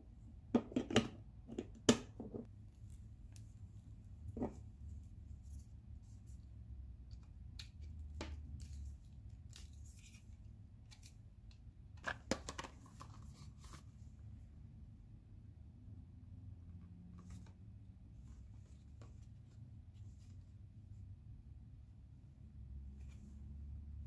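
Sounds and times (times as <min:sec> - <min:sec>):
low steady hum: 0:00.0 - 0:12.1
hands handling plastic charger: 0:07.1 - 0:13.9.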